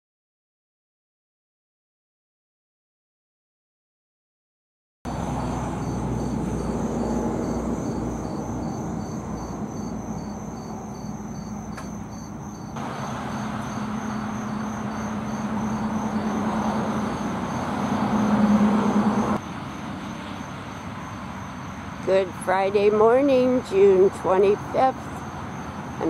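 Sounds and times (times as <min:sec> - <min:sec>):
insects chirping: 0:05.1 - 0:22.3, 0:23.0 - 0:26.0
road traffic hum: 0:05.1 - 0:26.0
vehicle passing: 0:05.1 - 0:26.0.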